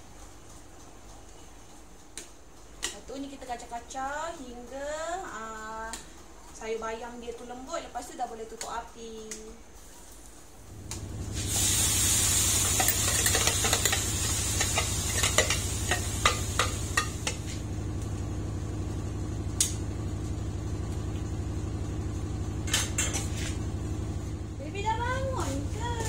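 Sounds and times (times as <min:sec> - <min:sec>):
steady low hum: 0:00.0 - 0:26.0
chili paste sizzling in a wok: 0:10.8 - 0:20.0
spoon scraping and tapping: 0:12.6 - 0:17.6.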